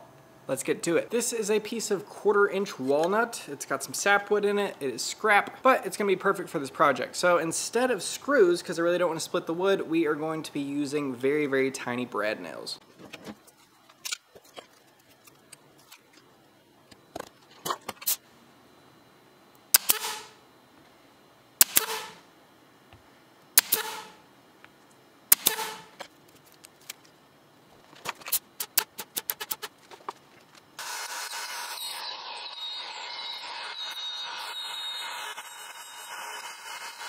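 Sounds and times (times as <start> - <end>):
nail gun shots: 19.7 - 20.4, 21.6 - 22.2, 23.6 - 24.2, 25.3 - 26.0, 28.6 - 29.7
motor running: 30.8 - 37.0.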